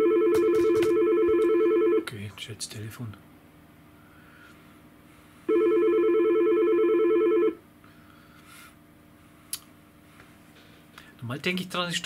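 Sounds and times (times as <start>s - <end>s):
phone ringing: 0.0s - 2.1s, 5.5s - 7.6s.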